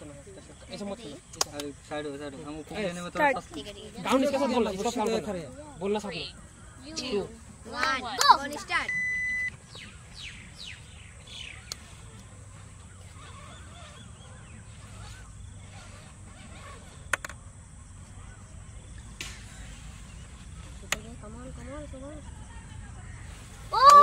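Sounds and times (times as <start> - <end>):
bird calls: 0.0 - 24.0
sharp clicks: 1.3 - 1.8, 11.6 - 12.3, 17.1 - 17.4
electronic timer beep: 8.8 - 9.6.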